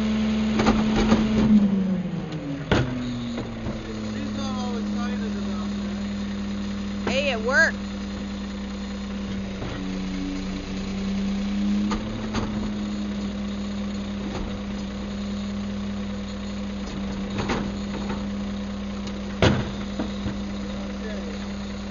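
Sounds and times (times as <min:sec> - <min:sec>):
garbage truck engine running: 0:00.0 - 0:21.9
garbage cart banging down: 0:19.4 - 0:20.5
garbage cart knocking: 0:19.4 - 0:20.5.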